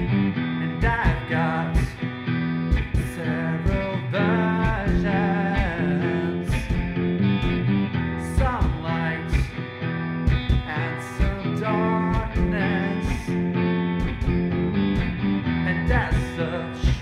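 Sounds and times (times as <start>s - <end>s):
alternative rock band: 0.0s - 17.0s
drum hits: 0.8s - 4.0s, 4.6s - 5.9s, 6.5s - 7.7s, 8.4s - 9.7s, 10.3s - 11.5s, 12.1s - 15.3s, 15.9s - 17.0s.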